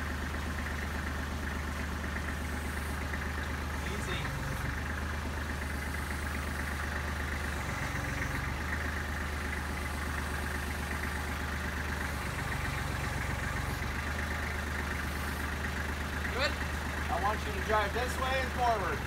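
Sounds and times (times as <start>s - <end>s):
tractor engine idling: 0.0s - 19.0s.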